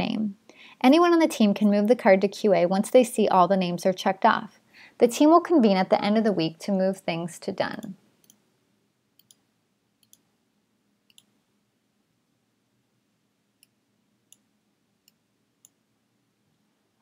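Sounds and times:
quiet room hiss: 0.0 - 17.0
computer mouse clicks: 9.2 - 9.4, 10.0 - 10.3, 11.1 - 11.3.

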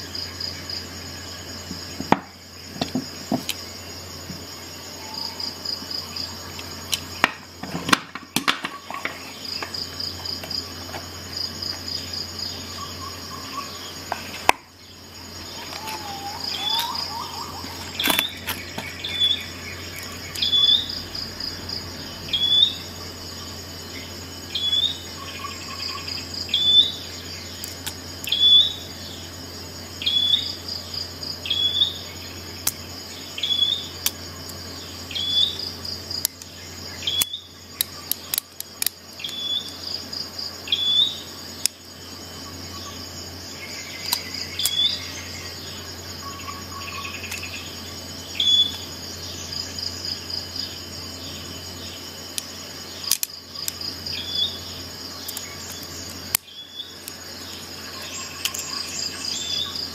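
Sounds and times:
low steady hum: 0.0 - 59.9
high short chirping calls: 15.4 - 21.0.

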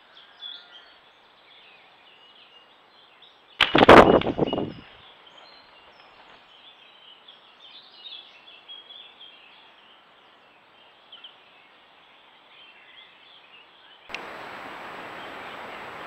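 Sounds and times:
songbirds chirping faintly: 0.0 - 16.0
steady hiss: 8.5 - 16.0.

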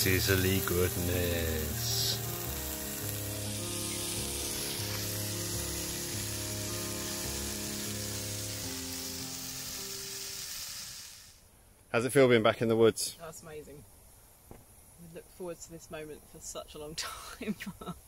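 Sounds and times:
background music of held chords: 0.0 - 10.2
steak sizzling in a frying pan: 0.0 - 11.4.

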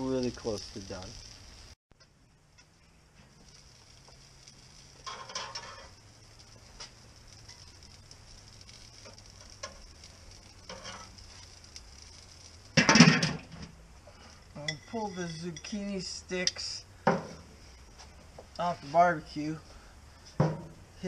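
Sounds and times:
food sizzling on grill: 0.0 - 1.8, 3.1 - 21.0
metal tongs scraping on grate: 5.0 - 6.0, 10.6 - 11.6.

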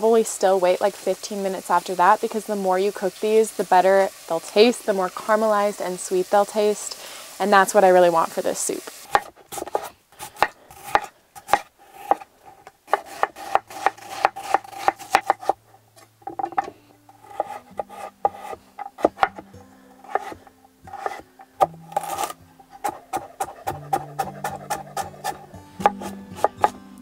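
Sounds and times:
knife chopping on wooden board: 9.1 - 12.3, 12.9 - 15.6, 16.2 - 19.4, 20.0 - 26.8
soft background music: 13.8 - 27.0.

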